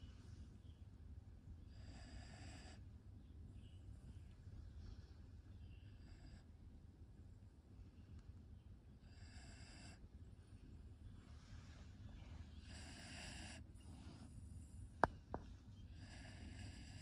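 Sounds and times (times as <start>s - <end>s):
dog snoring softly: 1.7s - 2.9s, 5.8s - 6.5s, 9.0s - 10.1s, 12.1s - 14.4s, 15.1s - 17.0s.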